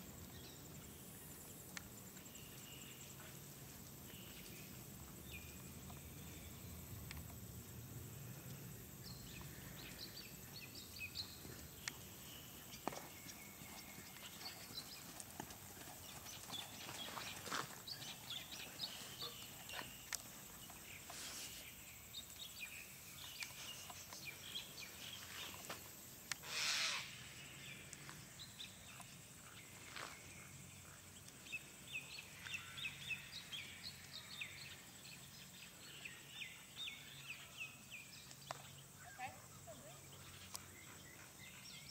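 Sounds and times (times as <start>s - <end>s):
birds chirping: 8.2s - 41.9s
hoofbeats on sand: 11.2s - 21.6s.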